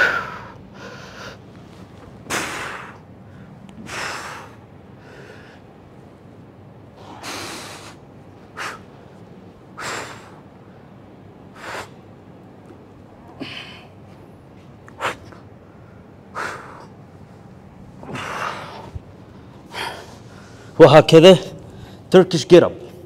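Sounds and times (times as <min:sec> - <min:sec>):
man breathing hard: 0:00.0 - 0:01.5, 0:02.3 - 0:05.8, 0:07.0 - 0:09.1, 0:09.8 - 0:12.0, 0:13.2 - 0:14.1, 0:14.9 - 0:17.0, 0:18.0 - 0:20.8.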